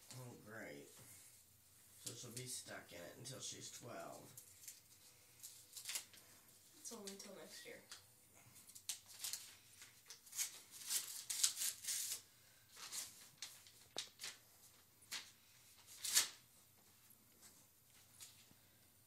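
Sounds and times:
paper envelope rustling: 4.4s - 6.3s, 8.7s - 16.5s.

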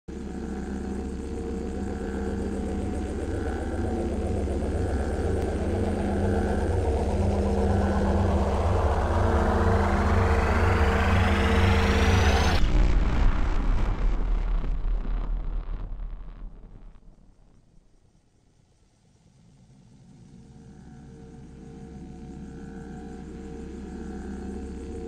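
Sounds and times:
low droning hum with throb: 0.1s - 17.1s, 19.0s - 25.0s
whooshing sweep rising in pitch: 5.6s - 12.6s.

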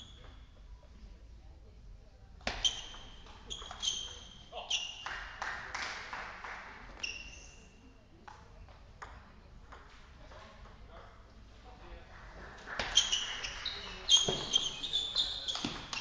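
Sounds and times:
table tennis ball pinging: 2.5s - 4.4s, 9.0s - 9.9s, 12.7s - 16.0s.

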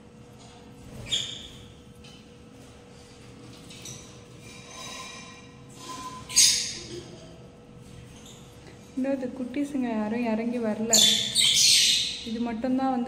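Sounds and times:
bird chirping and chattering: 6.2s - 7.2s, 10.8s - 12.4s.

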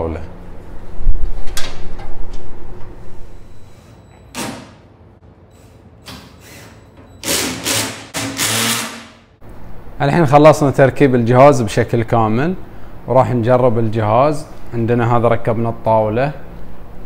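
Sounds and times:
cordless drill bursts: 6.4s - 9.1s.

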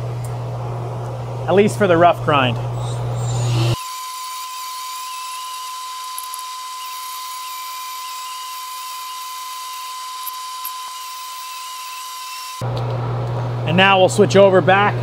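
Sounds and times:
die grinder grinding steel: 2.8s - 12.6s.

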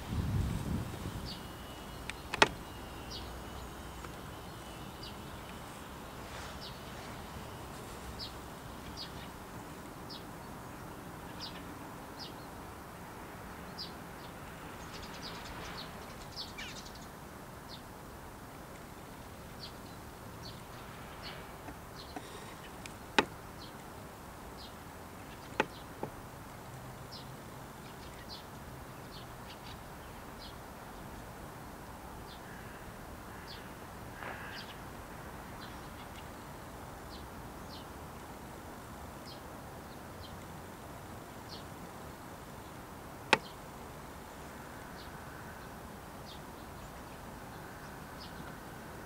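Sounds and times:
faint background noise: 0.0s - 49.0s
sharp clicks: 2.0s - 2.6s.

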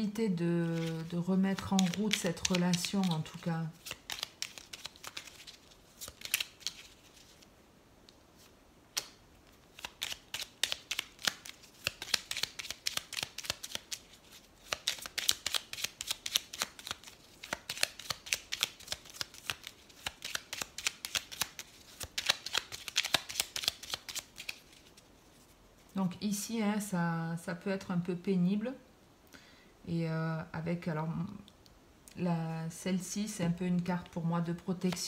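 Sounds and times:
cards being shuffled: 0.6s - 7.5s, 8.4s - 25.8s, 34.8s - 35.0s.

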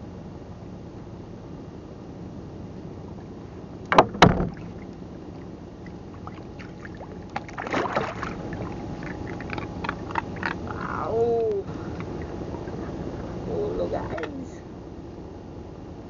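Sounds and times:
loud knocks: 3.9s - 4.7s
fish splashing in water: 4.2s - 11.0s.

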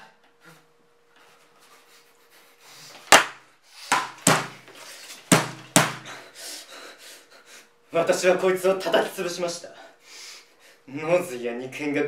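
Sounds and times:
hatchet chopping blows: 3.1s - 4.7s, 5.3s - 6.2s.

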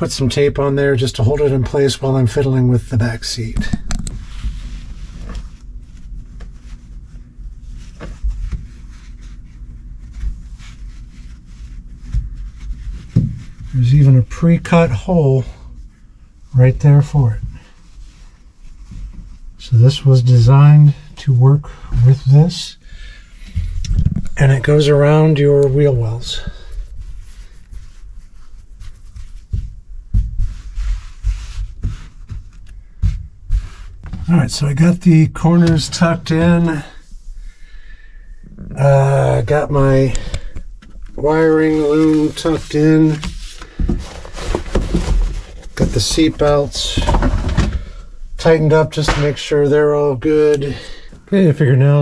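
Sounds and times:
hands rustling padding: 1.2s - 19.8s, 23.0s - 37.8s, 38.4s - 51.3s
dull thumps of hands pressing: 29.0s - 34.3s.

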